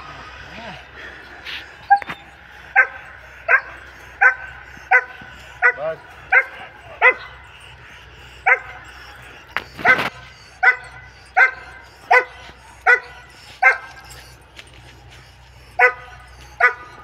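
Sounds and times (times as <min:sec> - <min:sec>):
dog barking: 0:02.7 - 0:07.5, 0:08.4 - 0:14.2, 0:15.8 - 0:17.0.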